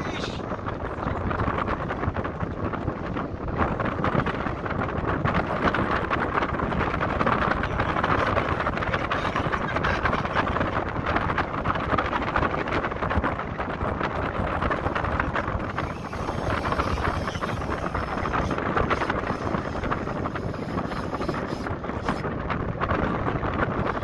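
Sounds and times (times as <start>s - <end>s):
wind buffeting the microphone: 0.0s - 24.0s.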